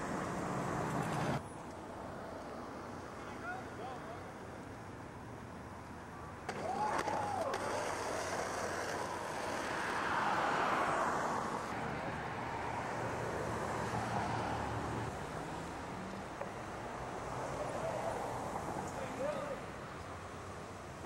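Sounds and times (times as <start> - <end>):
car passing by: 6.6 - 19.6.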